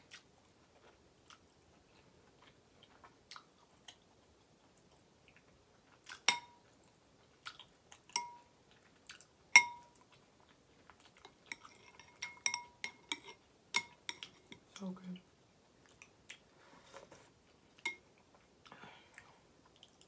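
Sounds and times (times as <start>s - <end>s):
spoon clinking against glass bowl: 6.3s - 6.6s, 8.2s - 8.5s, 9.6s - 10.0s, 11.2s - 14.6s.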